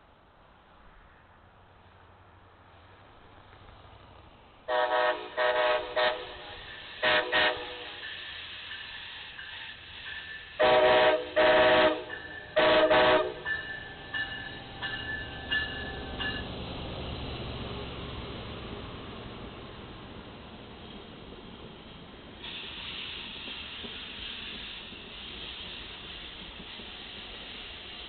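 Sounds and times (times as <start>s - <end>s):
train air horn short blasts: 4.7s - 8.2s, 10.5s - 15.0s.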